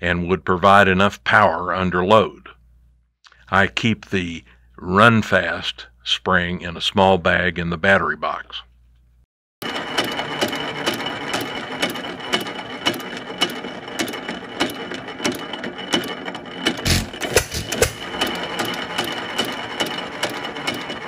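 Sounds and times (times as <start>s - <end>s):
hit-and-miss engine clicking: 9.6s - 21.0s.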